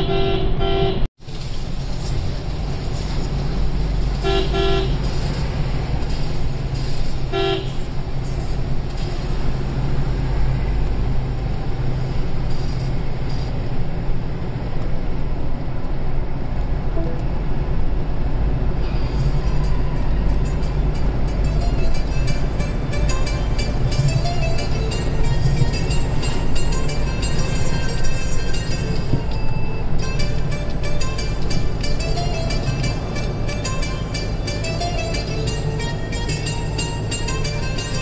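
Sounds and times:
vehicle horn toots: 0:00.0 - 0:01.1, 0:04.2 - 0:05.1, 0:07.3 - 0:07.9
vehicle engine and road noise: 0:00.0 - 0:38.0.

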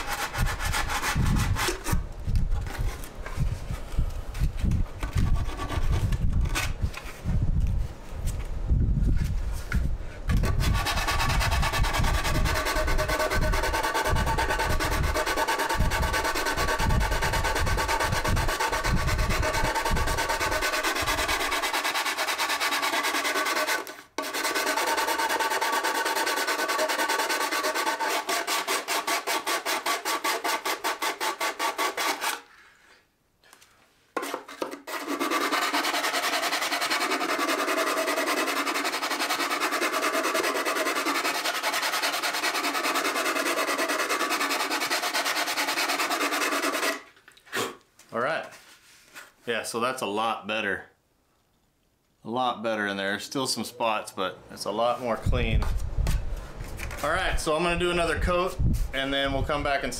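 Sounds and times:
sandpaper rubbing back and forth: 0:00.0 - 0:02.0, 0:05.2 - 0:06.2, 0:10.4 - 0:32.5, 0:34.8 - 0:47.1.

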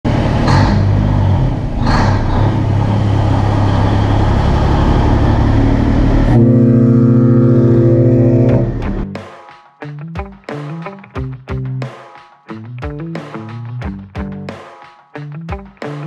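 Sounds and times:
loud engine running: 0:00.0 - 0:09.0.

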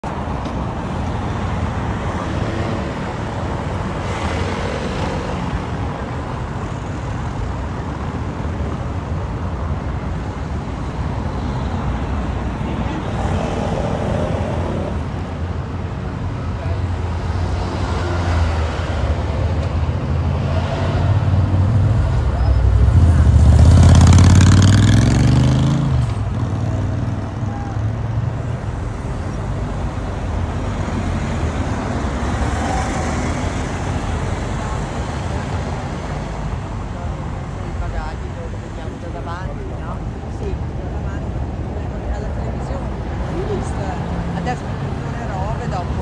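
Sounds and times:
cars driving on cobbled road: 0:00.0 - 0:46.0.

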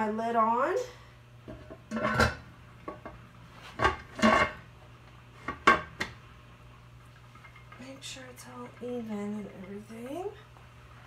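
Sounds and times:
metal lid clanking on pot: 0:01.9 - 0:02.4.

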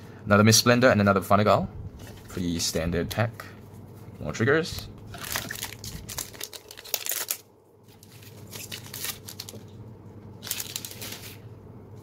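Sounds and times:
foil wrapper crinkling and tearing: 0:05.1 - 0:09.7, 0:10.4 - 0:11.4.

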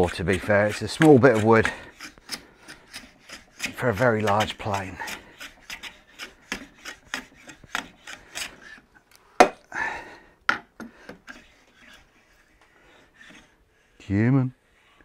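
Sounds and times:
hand plane rasping on wood: 0:00.0 - 0:08.9, 0:10.8 - 0:13.6.

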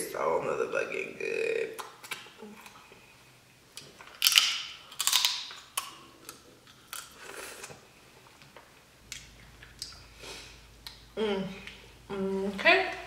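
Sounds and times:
shells cracking and clicking: 0:03.8 - 0:07.2.

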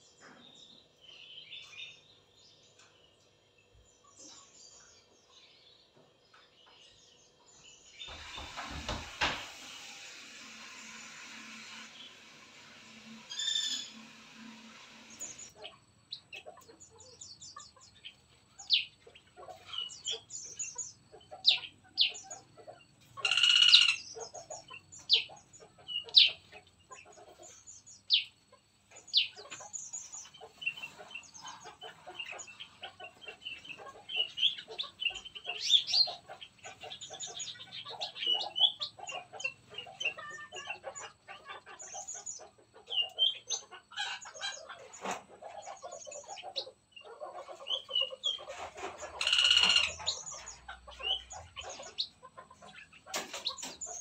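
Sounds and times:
songbirds chirping and calling: 0:00.0 - 0:54.0.

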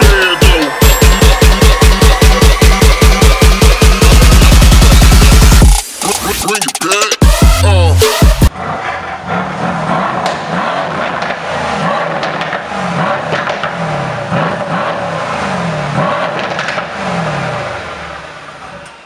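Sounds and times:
car exhaust revving: 0:00.0 - 0:05.8, 0:08.2 - 0:18.8
exhaust crackles: 0:08.5 - 0:18.7.

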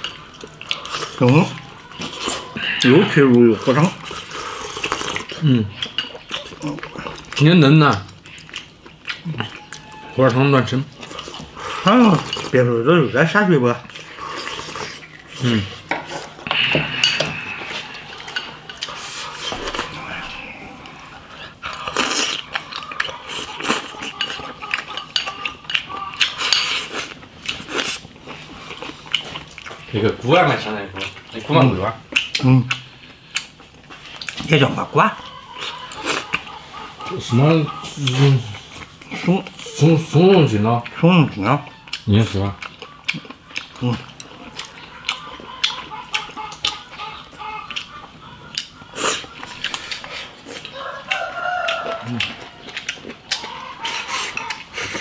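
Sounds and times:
slurping: 0:00.0 - 0:07.5, 0:13.8 - 0:29.9
chewing: 0:00.0 - 0:55.0
utensils clinking on ceramic bowl: 0:15.9 - 0:18.9, 0:24.0 - 0:26.7.

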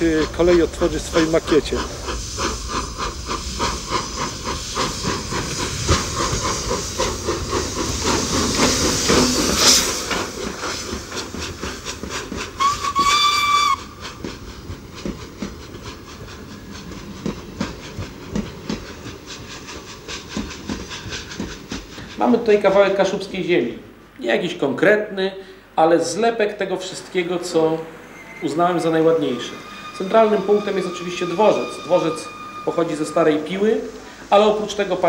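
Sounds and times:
hiss of steam: 0:00.0 - 0:23.3, 0:28.0 - 0:35.0
steam locomotive chuffing: 0:00.0 - 0:23.5, 0:26.6 - 0:35.0
steam whistle blast: 0:12.6 - 0:13.9, 0:29.2 - 0:34.0.

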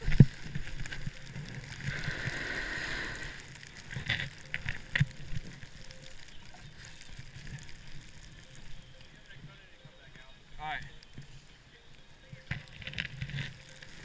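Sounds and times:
snowboard scraping snow: 0:00.0 - 0:05.8.

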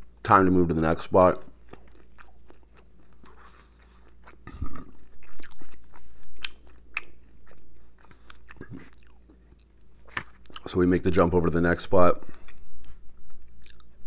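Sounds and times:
person chewing crunchy food: 0:01.3 - 0:10.7, 0:12.2 - 0:14.0.

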